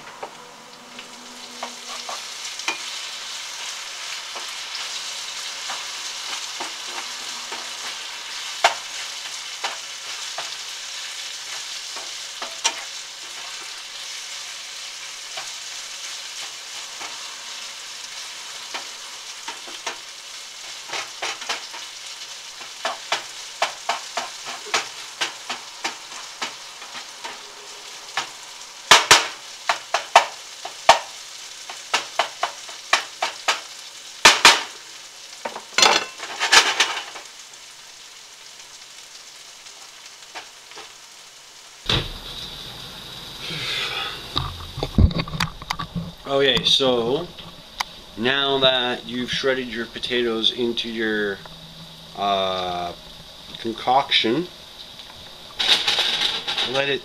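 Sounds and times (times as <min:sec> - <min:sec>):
potatoes and bacon sizzling: 0:00.0 - 0:57.0
spatula scraping a pan: 0:01.2 - 0:14.3, 0:55.6 - 0:56.8.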